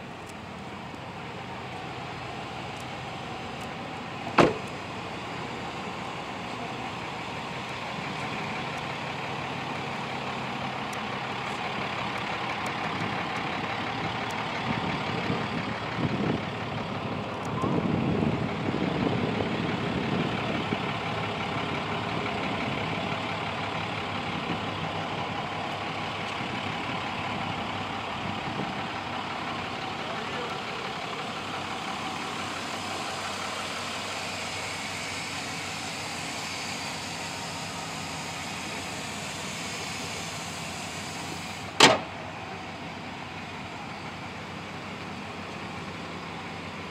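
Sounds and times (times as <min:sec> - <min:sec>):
pickup engine idling: 0:00.0 - 0:46.9
sharp loud knock: 0:04.4 - 0:04.6, 0:41.8 - 0:42.1.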